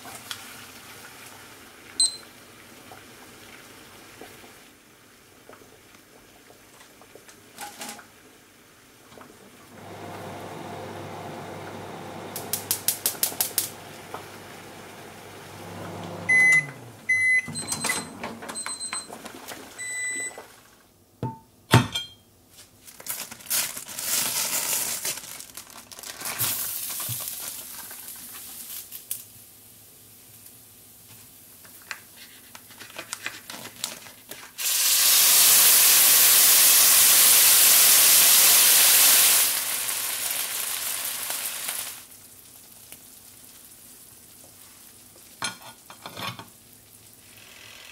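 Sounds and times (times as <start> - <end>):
microwave beeps: 2.0 - 2.4, 15.1 - 19.2, 19.8 - 20.5
microwave oven humming: 9.7 - 19.0
fries sizzling on hot plate: 12.0 - 15.6, 24.0 - 32.6, 34.5 - 47.9
plastic bag rustling: 22.6 - 28.9.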